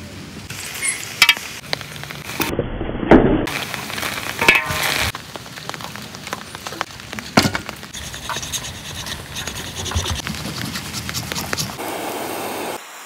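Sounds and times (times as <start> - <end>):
boiling water hissing in a wok: 0.0 - 2.4, 3.5 - 8.3, 10.8 - 13.0
knife cutting and scraping meat: 8.0 - 11.8.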